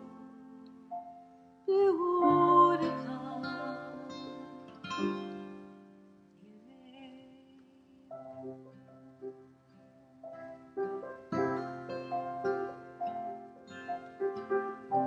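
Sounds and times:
acoustic guitar: 0.0 - 15.0
grand piano: 0.0 - 15.0
woman singing: 1.7 - 4.5, 6.4 - 8.1.

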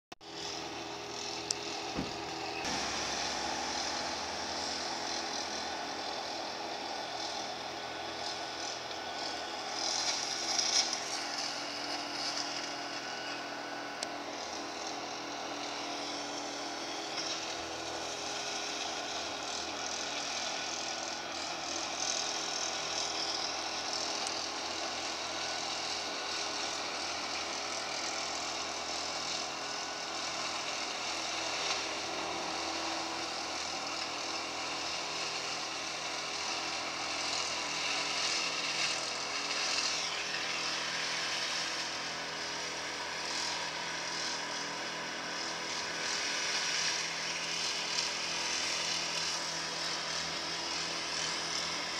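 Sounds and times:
distant tractor engine: 0.2 - 51.9
flail hedgecutter cutting hedge: 0.2 - 51.9.

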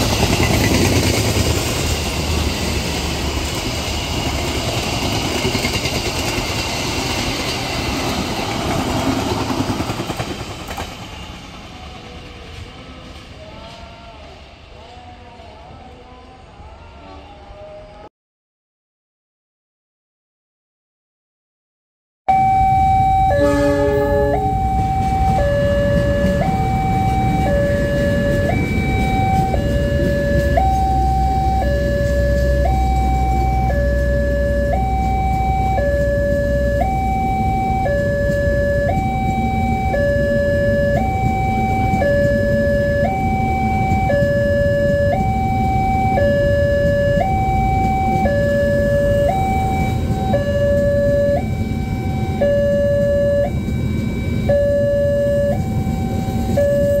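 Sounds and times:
level crossing two-tone alarm: 22.3 - 57.0.

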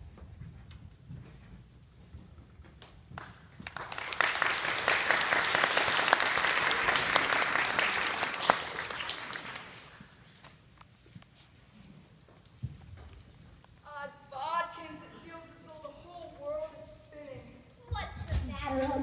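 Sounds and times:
audience applauding: 3.2 - 10.2.

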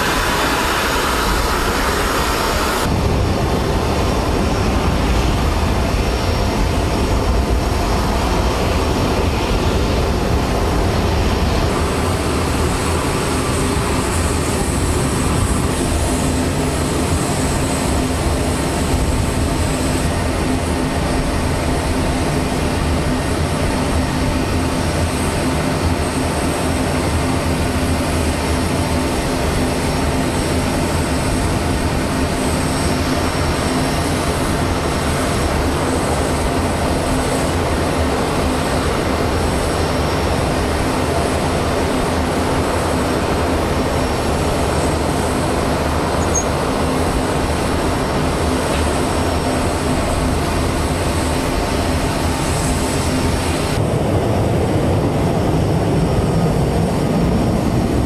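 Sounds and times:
faint high whine: 43.8 - 53.8.

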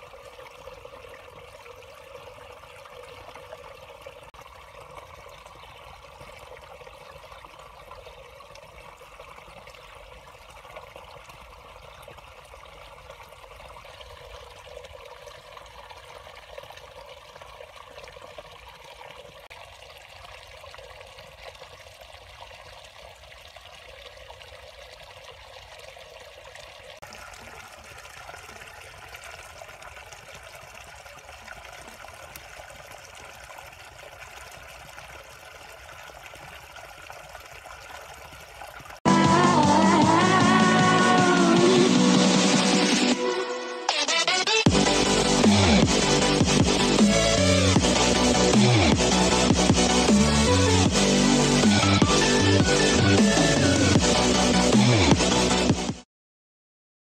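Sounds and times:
water trickling: 0.0 - 39.1.

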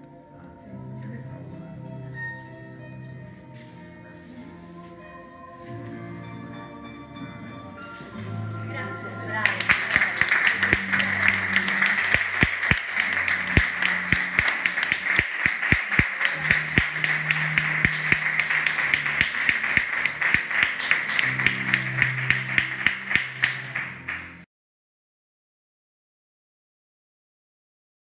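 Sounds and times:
music with low held notes: 0.0 - 24.4
hand-clapping: 9.4 - 24.4.

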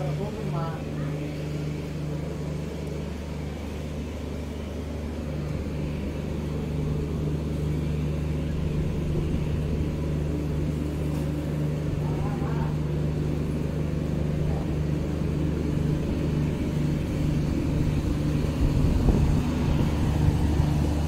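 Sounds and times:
diesel locomotive engine idling: 0.0 - 21.0.

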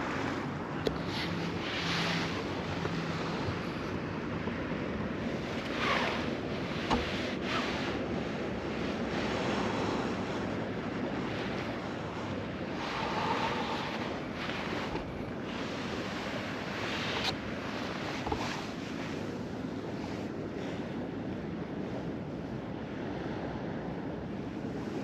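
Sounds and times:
sea surf washing onto beach: 0.0 - 19.6
wind buffeting microphone: 0.0 - 25.0.

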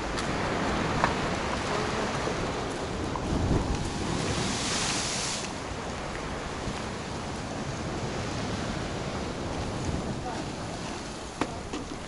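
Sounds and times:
waves crashing: 0.0 - 12.0
hiss of rushing water: 1.6 - 12.0.

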